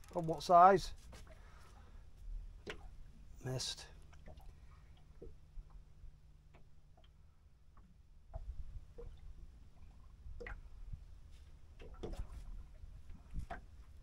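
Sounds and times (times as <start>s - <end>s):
fishing reel ticks and knocks: 0.0s - 0.8s
water lapping at hull: 0.0s - 14.0s.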